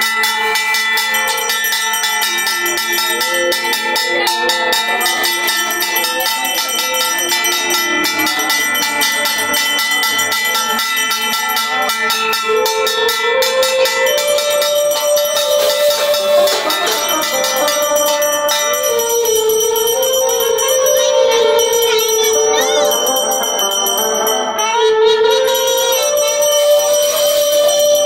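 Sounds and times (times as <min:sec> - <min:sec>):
hand bell rung rapidly: 0:00.0 - 0:28.0
long held tone: 0:11.7 - 0:28.0.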